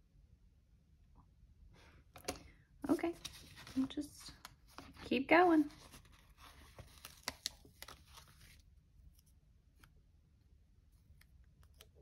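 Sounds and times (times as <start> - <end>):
paper sticker sheets rustling: 3.1 - 9.9.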